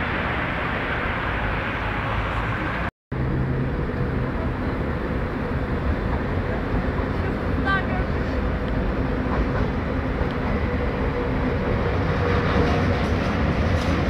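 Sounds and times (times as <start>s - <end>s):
city street traffic noise: 0.0s - 14.0s.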